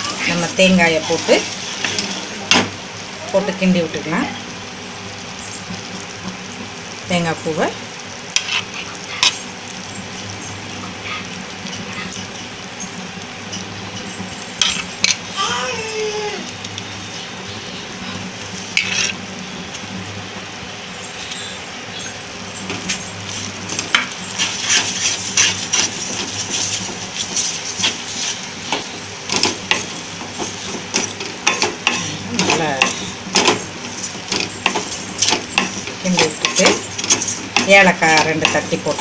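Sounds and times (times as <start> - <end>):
sugar mixture sizzling: 0.0 - 39.0
wooden spatula scraping a pan: 8.3 - 9.4, 18.7 - 19.2, 22.8 - 39.0.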